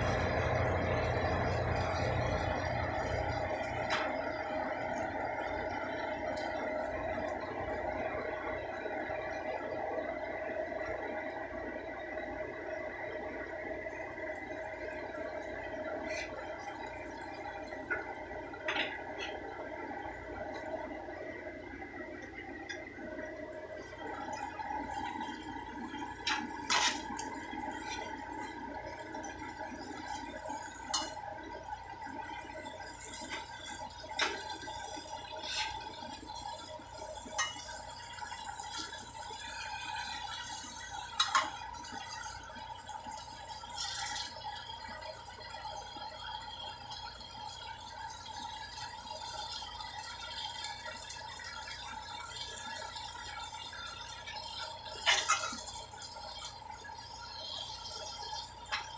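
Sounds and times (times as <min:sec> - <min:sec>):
vegetables sizzling in oil: 0:24.0 - 0:44.6, 0:46.6 - 0:58.9.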